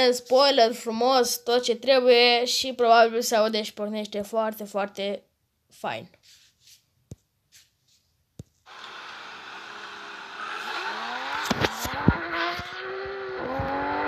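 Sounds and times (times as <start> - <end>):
car engine accelerating hard: 8.7 - 14.0
sharp exhaust cracks: 8.7 - 14.0.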